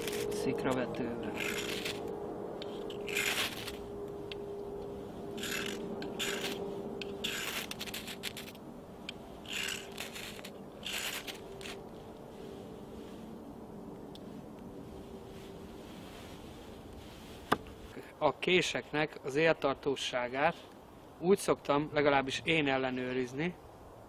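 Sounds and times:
tool scraping wood: 0.0s - 0.5s, 1.2s - 3.9s, 5.3s - 8.6s, 9.4s - 11.8s.

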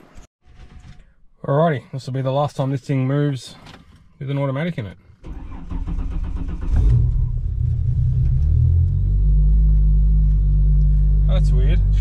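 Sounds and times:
starter motor cranking: 5.3s - 7.3s.

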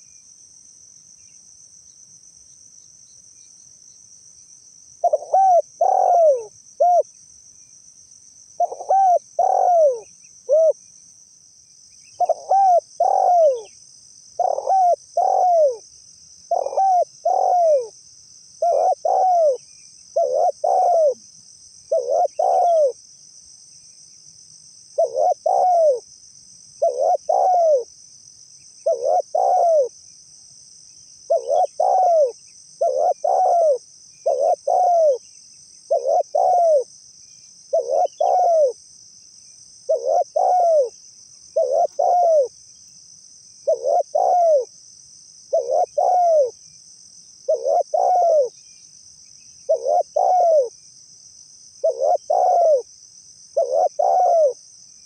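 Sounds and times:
dove cooing: 5.0s - 7.1s, 8.6s - 10.8s, 12.2s - 13.7s, 14.4s - 15.8s, 16.5s - 18.0s, 18.6s - 19.6s, 20.2s - 21.2s, 21.9s - 23.0s, 25.0s - 26.0s, 26.8s - 27.9s, 28.8s - 29.9s, 31.3s - 35.2s, 35.9s - 36.9s, 37.7s - 38.8s, 39.9s - 41.0s, 41.6s - 42.5s, 43.6s - 44.7s, 45.5s - 46.6s, 47.5s - 48.6s, 49.7s - 50.7s, 51.8s - 52.9s, 53.6s - 54.6s.

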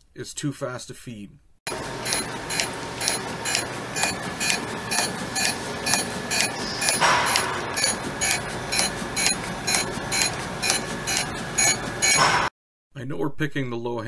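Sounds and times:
surface grinder grinding steel: 1.7s - 12.5s.

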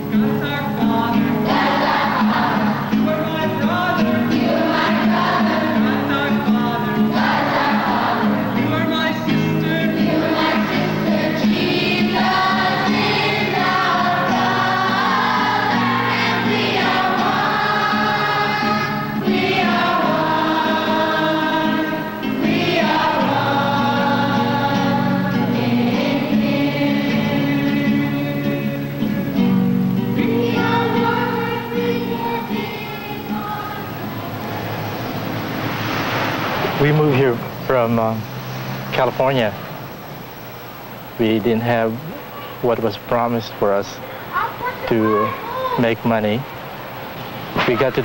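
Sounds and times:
children singing: 0.7s - 38.7s.

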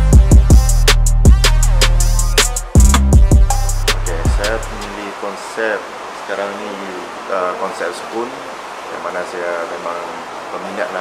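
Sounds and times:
background music with drums and bass: 0.0s - 5.0s.

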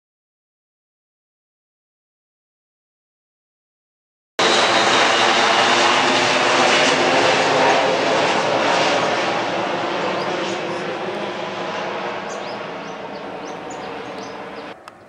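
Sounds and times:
jet passing low overhead: 4.4s - 15.0s.

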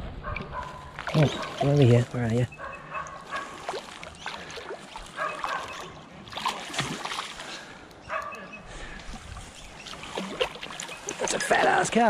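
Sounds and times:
fish splashing at the surface: 3.3s - 7.6s, 9.9s - 11.7s.

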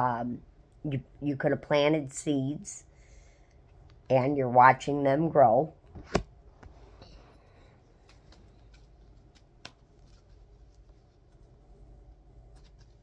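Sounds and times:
cards being shuffled: 7.9s - 11.6s, 12.4s - 13.0s.

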